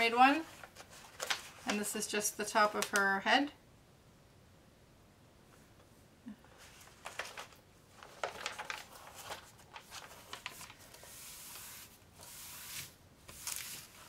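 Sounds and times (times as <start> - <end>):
plastic film crinkling: 0.3 - 2.0, 6.7 - 11.8
hands sliding over plastic film: 6.6 - 14.0.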